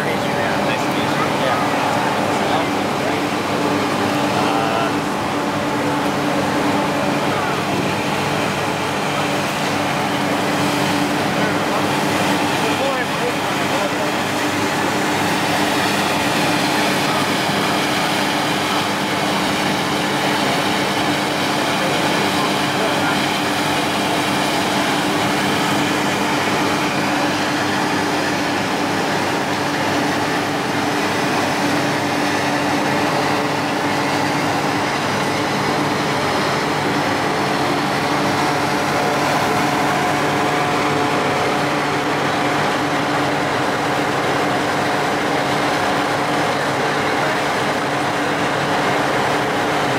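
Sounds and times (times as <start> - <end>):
murmuring voices: 0.0 - 14.4.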